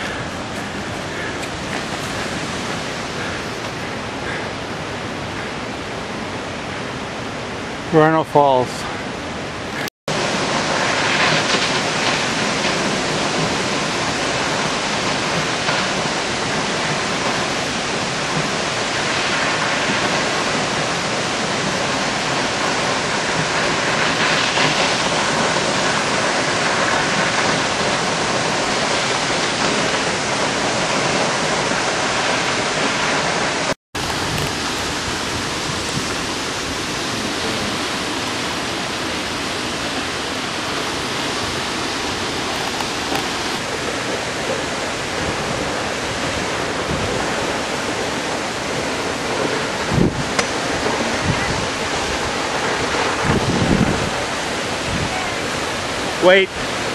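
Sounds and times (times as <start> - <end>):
waterfall rushing: 0.0 - 56.9.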